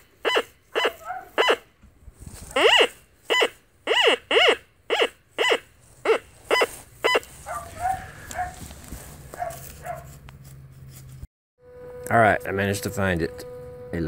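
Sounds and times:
metal detector beeping: 0:00.0 - 0:01.7, 0:02.6 - 0:07.4, 0:11.6 - 0:14.0
rustling: 0:02.0 - 0:03.6, 0:05.7 - 0:11.3.

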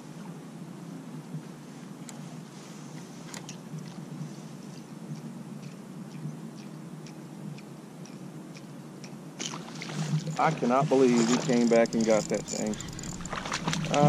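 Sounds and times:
steady low hum: 0:00.0 - 0:14.0
fishing reel clicks and ticks: 0:11.2 - 0:14.0.

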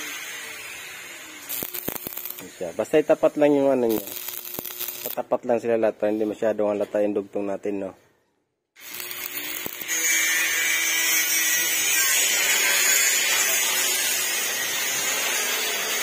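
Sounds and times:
welding arc sizzling: 0:00.0 - 0:05.4, 0:08.8 - 0:16.0.

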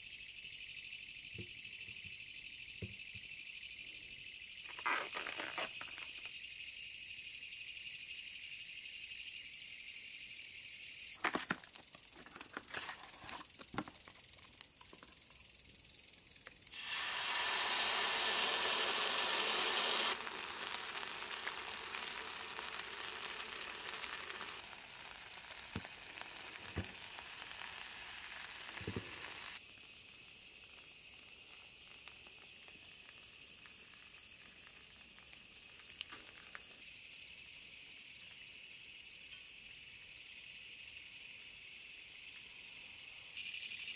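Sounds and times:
crickets chirping: 0:00.0 - 0:43.9
food sizzling in a skillet: 0:16.7 - 0:30.0.

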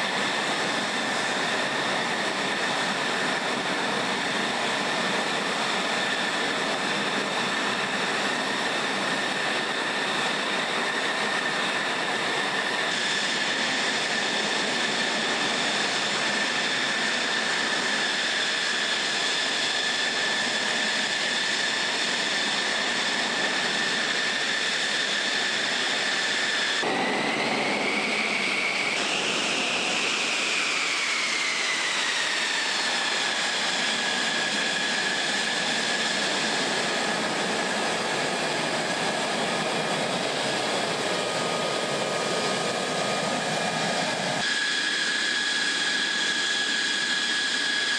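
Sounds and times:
jet engine whine: 0:00.0 - 0:47.9.

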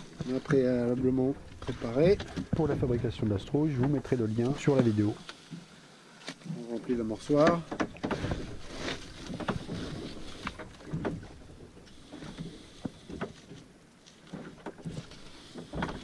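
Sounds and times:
light knocks and handling noises: 0:00.0 - 0:05.6, 0:07.2 - 0:11.3.

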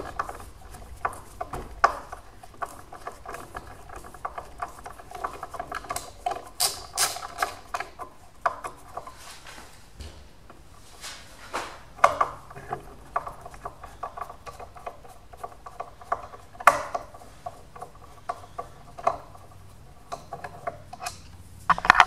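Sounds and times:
screwdriver metal clicks and scrapes: 0:00.0 - 0:09.2.

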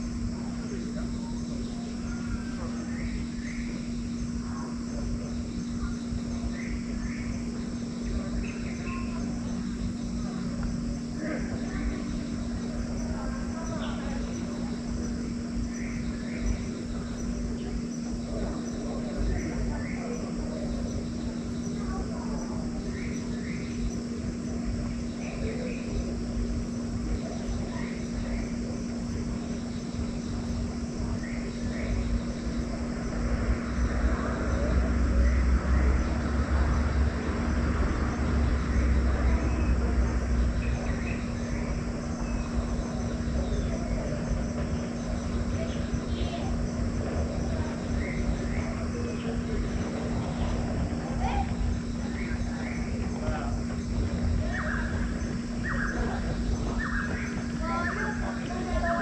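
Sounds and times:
high-pitched insect chorus: 0:00.0 - 0:59.0
low steady hum: 0:00.0 - 0:59.0
bird calling rising notes: 0:38.3 - 0:59.0.

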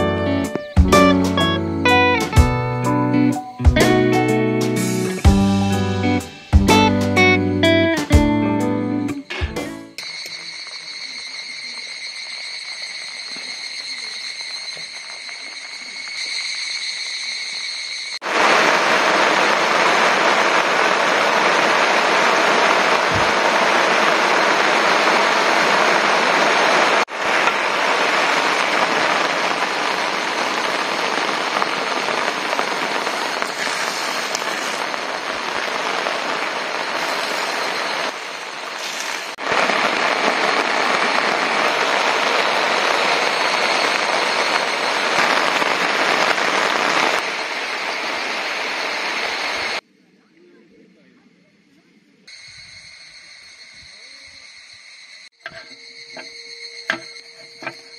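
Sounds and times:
rain on tent fabric: 0:12.2 - 0:16.4, 0:18.2 - 0:49.8.

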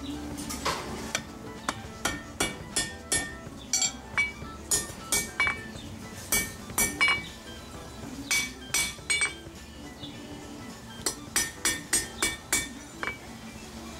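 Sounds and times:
hammer striking metal on anvil: 0:01.1 - 0:05.7, 0:06.3 - 0:07.3, 0:08.3 - 0:09.4, 0:11.0 - 0:13.2.

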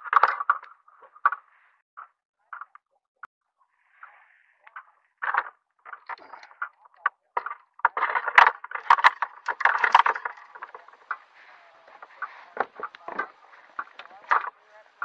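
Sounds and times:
gear knocking and rattling: 0:07.4 - 0:14.6.

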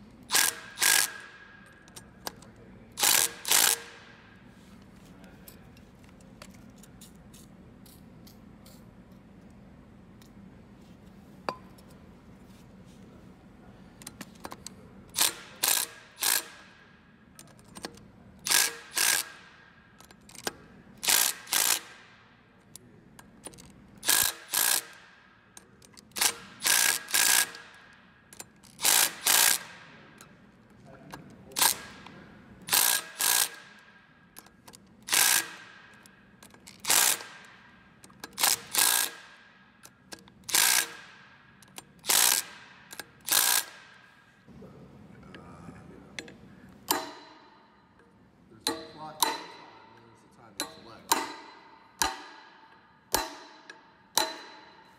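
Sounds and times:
impact driver hammering: 0:00.3 - 0:02.0, 0:03.0 - 0:04.2, 0:15.2 - 0:16.8, 0:18.4 - 0:22.3, 0:24.0 - 0:25.3, 0:26.0 - 0:30.1, 0:31.5 - 0:34.0, 0:34.6 - 0:44.1, 0:46.9 - 0:47.7, 0:48.7 - 0:50.0, 0:50.6 - 0:54.9.

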